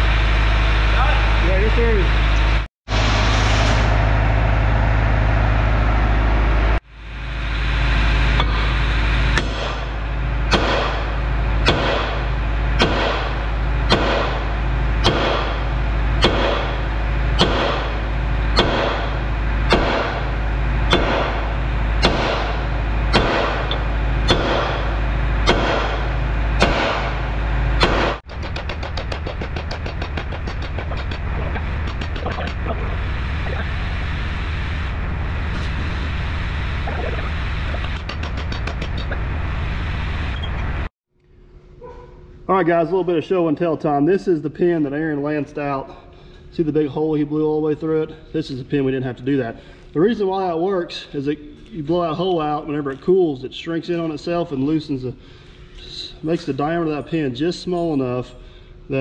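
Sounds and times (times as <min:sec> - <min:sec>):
low drone: 0:00.0 - 0:40.9
low hum: 0:00.0 - 0:59.0
metal strikes: 0:08.3 - 0:32.9.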